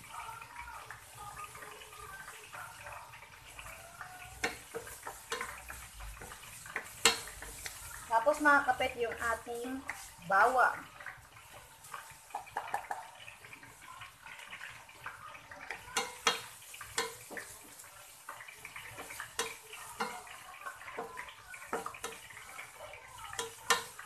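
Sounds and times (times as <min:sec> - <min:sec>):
onion sizzling in oil: 0:00.0 - 0:24.0
wooden spatula scraping pan: 0:04.3 - 0:10.8, 0:15.8 - 0:24.0.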